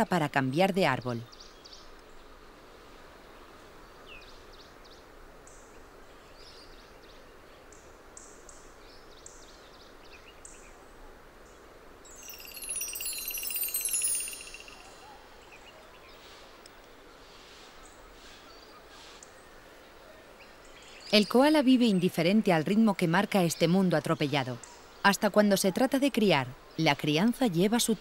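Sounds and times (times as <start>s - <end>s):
bird singing a fast trill: 12.1s - 15.7s
faint bird chirps: 12.1s - 21.4s.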